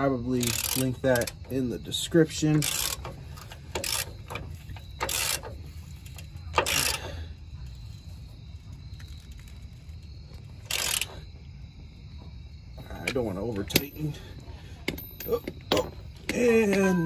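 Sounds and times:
socket ratchet clicking: 2.5s - 5.6s.

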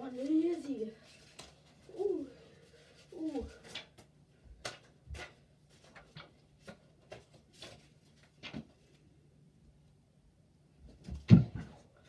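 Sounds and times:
paper sheets flicked and tossed: 3.1s - 8.9s.

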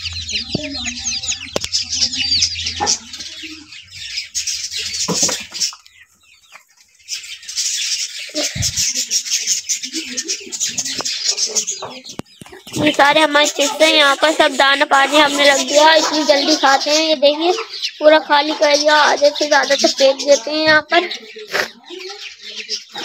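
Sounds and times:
chicks peeping: 0.0s - 23.0s.

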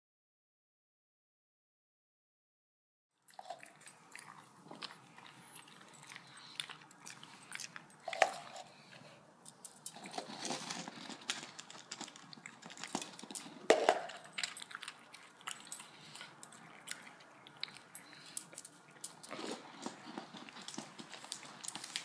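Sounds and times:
plastic cup rattling on floor: 10.0s - 14.4s.

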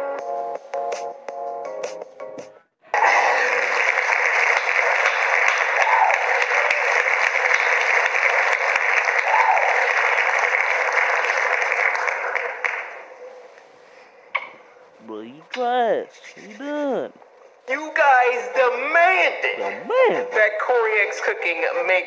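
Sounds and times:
crowd applauding: 2.9s - 13.1s.

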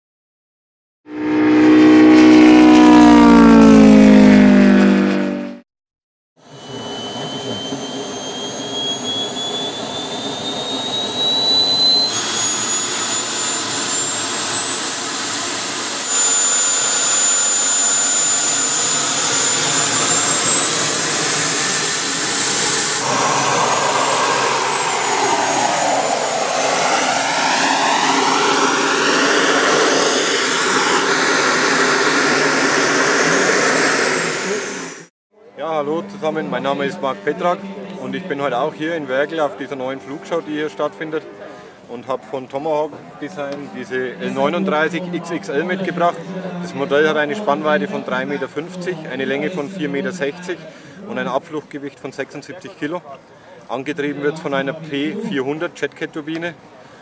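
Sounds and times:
model jet turbine whine: 1.1s - 4.8s, 6.4s - 52.4s
loud falling-pitch sound: 1.1s - 5.6s, 6.4s - 42.0s.

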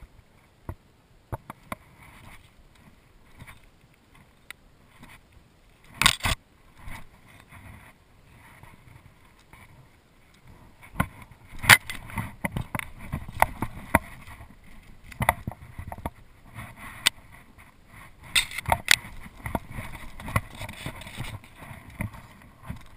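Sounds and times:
fishing rod clicks and knocks: 5.9s - 6.4s, 10.4s - 16.2s, 18.3s - 22.9s.

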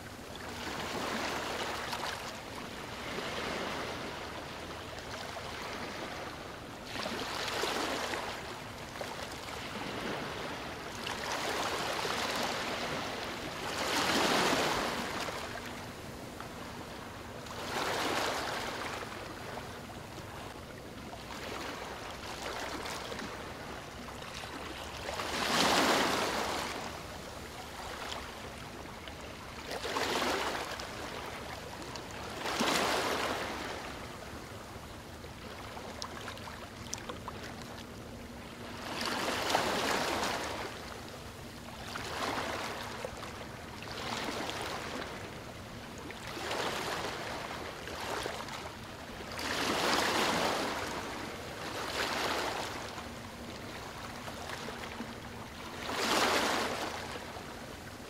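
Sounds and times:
ocean waves breaking on beach: 0.0s - 19.9s, 24.5s - 28.7s, 32.2s - 34.4s, 49.3s - 54.8s, 55.4s - 58.0s.

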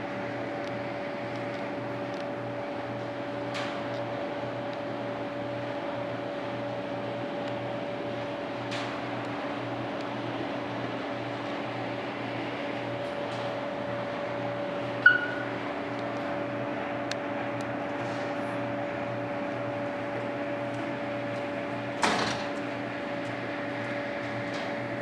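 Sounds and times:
mechanical hum: 0.0s - 25.0s
short high beep: 15.0s - 15.5s.

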